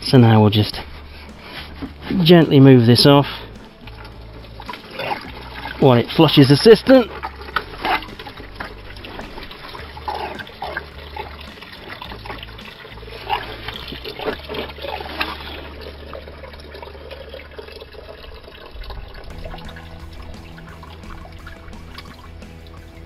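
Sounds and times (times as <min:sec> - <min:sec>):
liquid pouring into plastic bowl: 0:07.1 - 0:22.4.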